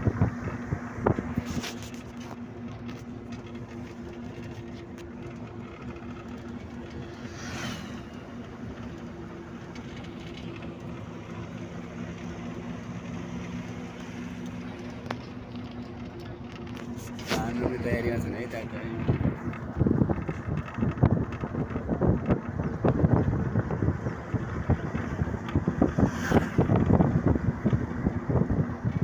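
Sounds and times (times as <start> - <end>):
bus engine hum: 0.0 - 29.0
brief whoosh: 7.3 - 8.2, 26.0 - 26.7.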